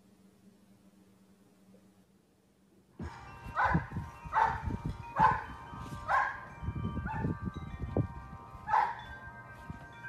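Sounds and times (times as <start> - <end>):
wind chimes ringing: 3.0 - 10.0
dog barking: 3.6 - 4.6, 5.2 - 5.5, 6.1 - 6.4, 8.7 - 9.0.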